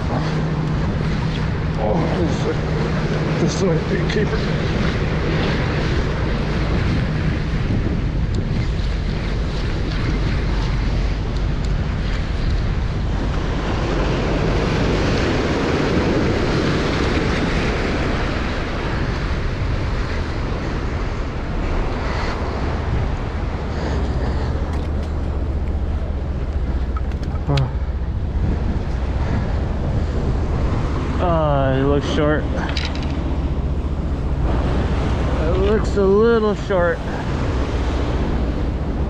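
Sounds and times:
surf washing against rocks: 0.0s - 39.0s
wind buffeting microphone: 0.0s - 39.0s.

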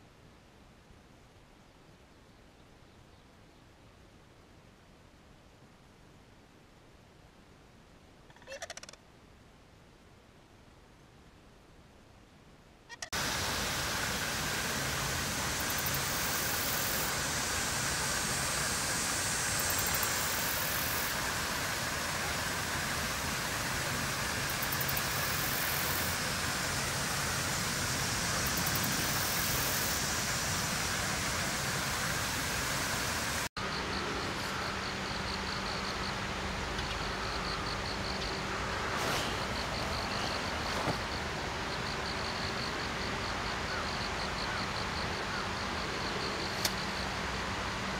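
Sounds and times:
outdoor background hiss: 0.0s - 47.9s.

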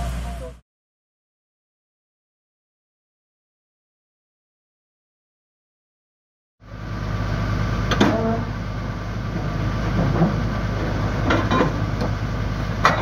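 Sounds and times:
excavator diesel engine idling: 0.0s - 0.6s, 6.6s - 13.0s
sharp metallic clanks: 11.2s - 12.0s, 12.8s - 13.0s.

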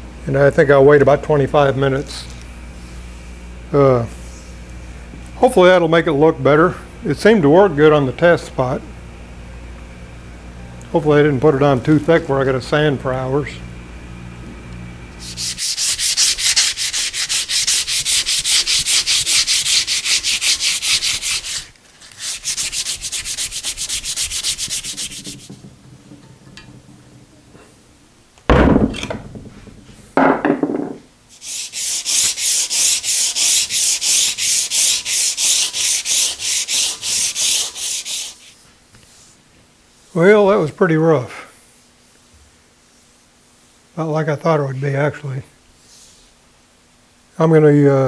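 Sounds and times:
sandpaper rasping strokes: 15.2s - 25.6s, 31.3s - 38.6s.

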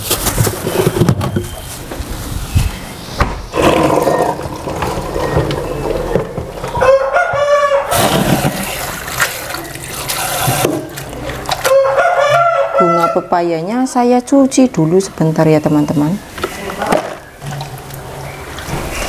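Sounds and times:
rooster crowing: 6.7s - 8.0s, 11.6s - 13.2s
water splashing in sink: 7.9s - 11.7s.

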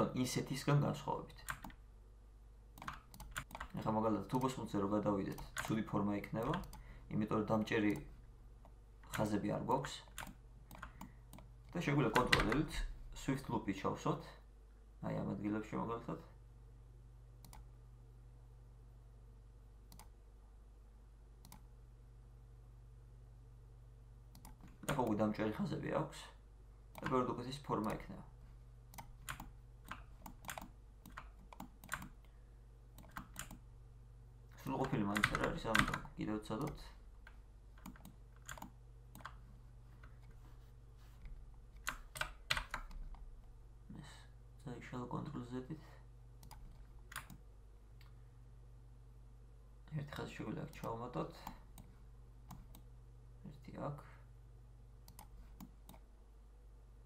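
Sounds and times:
faint low hum: 0.0s - 57.0s
computer mouse clicks: 1.4s - 1.8s, 2.8s - 4.6s, 5.2s - 6.9s, 7.8s - 9.4s, 10.1s - 12.7s, 17.4s - 17.7s, 19.9s - 20.2s, 21.4s - 21.7s, 24.3s - 25.2s, 26.9s - 27.2s, 28.9s - 32.4s, 33.0s - 33.6s, 34.6s - 40.4s, 41.2s - 43.2s, 46.4s - 47.4s, 50.1s - 52.9s, 55.0s - 56.1s.

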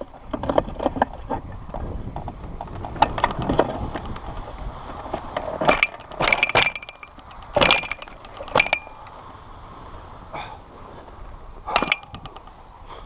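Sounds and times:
sharp clattering knocks and rattles: 0.0s - 9.1s, 11.7s - 12.6s.

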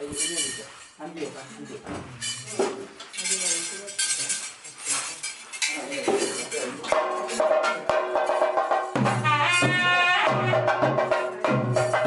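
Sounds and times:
metallic jingling and clinking: 0.0s - 7.0s.

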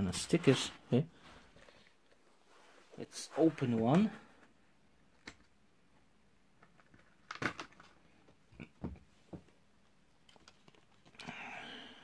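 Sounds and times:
packaging clicks and snaps: 6.6s - 8.0s.

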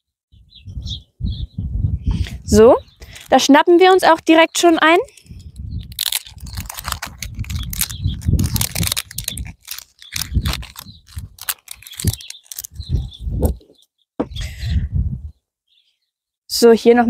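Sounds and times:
plastic clicks and rattles: 5.9s - 12.7s.

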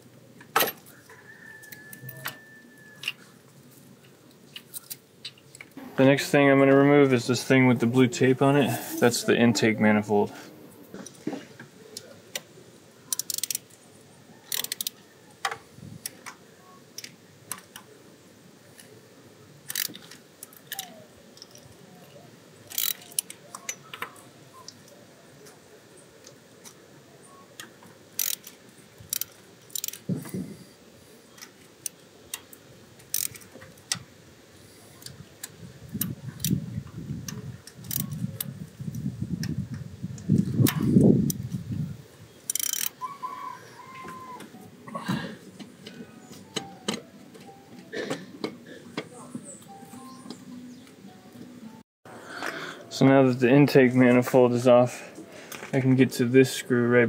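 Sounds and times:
ratchet clicking: 13.1s - 13.6s, 14.5s - 14.9s, 19.7s - 20.8s, 22.7s - 23.3s, 28.2s - 30.1s, 33.1s - 33.5s, 37.8s - 38.2s, 42.5s - 43.0s.

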